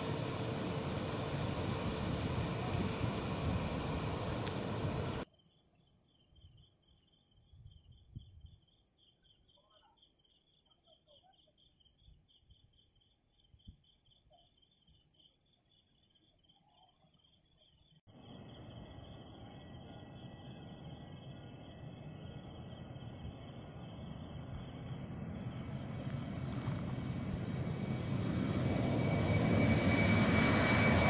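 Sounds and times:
jet engine noise: 0.0s - 5.3s, 18.1s - 31.0s
crickets chirring: 0.0s - 31.0s.

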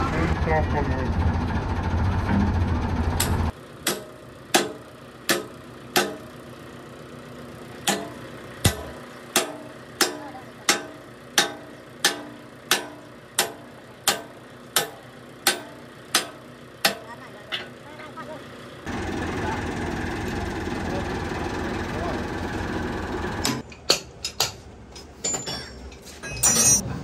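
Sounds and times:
hammer striking steel pin: 3.2s - 6.3s, 7.9s - 17.1s.

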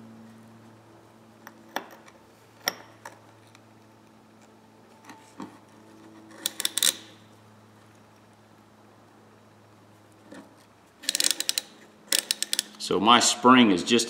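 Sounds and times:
ratchet parts clicking: 6.3s - 7.2s, 10.3s - 12.8s.

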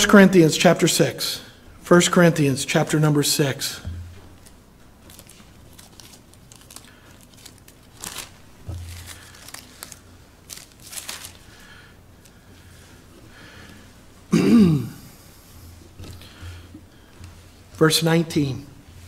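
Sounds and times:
thin pages rustling: 4.2s - 12.4s.

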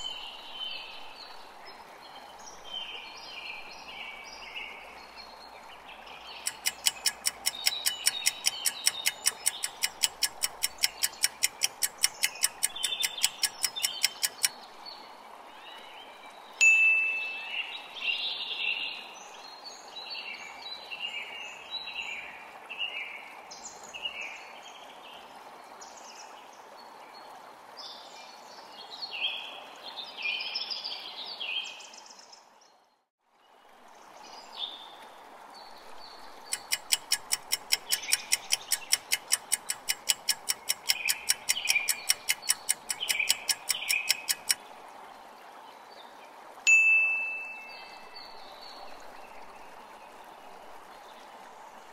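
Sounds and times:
birds chirping: 6.2s - 14.6s, 16.6s - 18.2s, 36.4s - 44.6s
fast even ticking: 6.5s - 14.5s, 36.5s - 44.6s.

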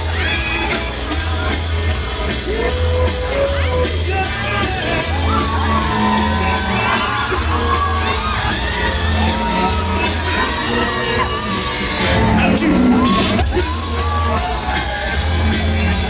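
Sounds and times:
fairground music with bass beat: 0.0s - 16.0s
riders shouting and whooping: 3.9s - 16.0s.

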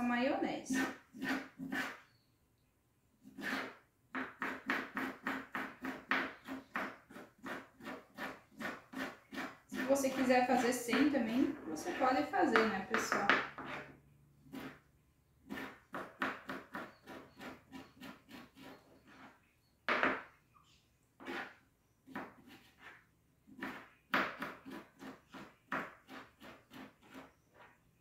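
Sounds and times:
knife chopping on cutting board: 3.4s - 10.2s, 23.6s - 27.2s.

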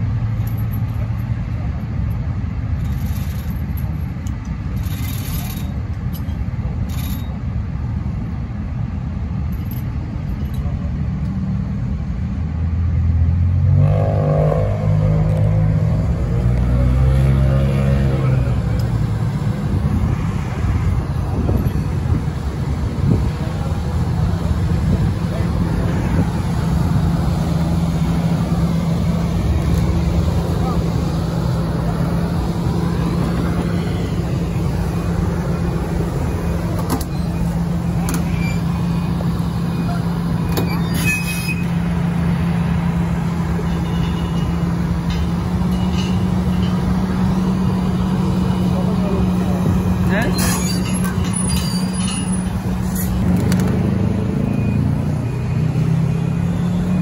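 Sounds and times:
excavator diesel engine revving: 12.5s - 57.0s.

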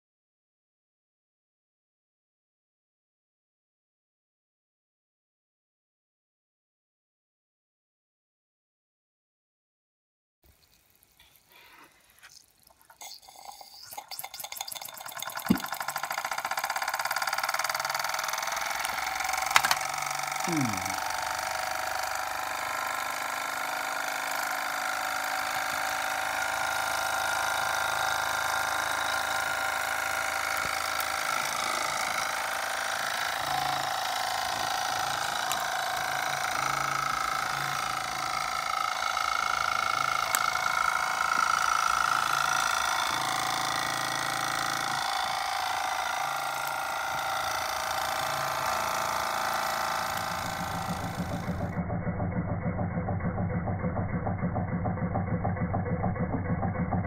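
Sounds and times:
steam hiss: 11.2s - 14.7s
model steam engine whirring: 11.2s - 57.0s.

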